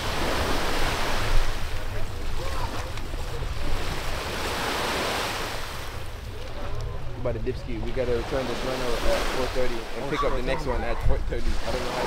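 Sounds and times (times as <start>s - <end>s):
sea waves washing: 0.0s - 12.0s.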